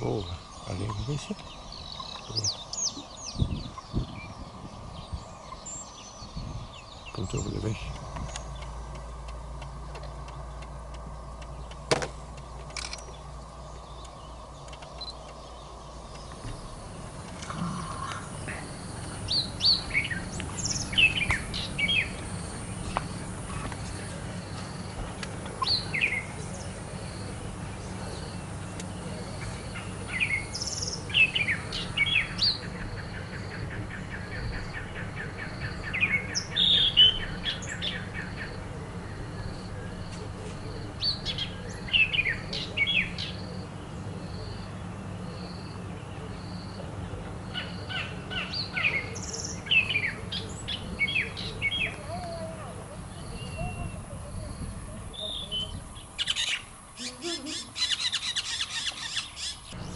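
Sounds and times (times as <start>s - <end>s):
birds chirping and trilling: 0.0s - 59.9s
insect high ticking: 7.7s - 27.3s.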